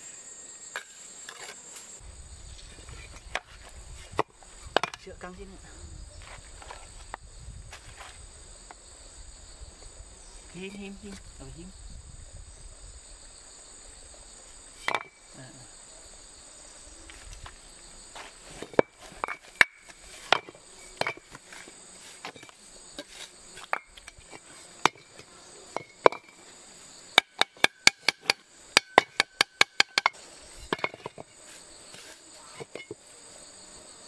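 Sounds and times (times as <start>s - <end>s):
crickets droning: 0.0s - 34.0s
tool tapping building material: 27.2s - 31.3s.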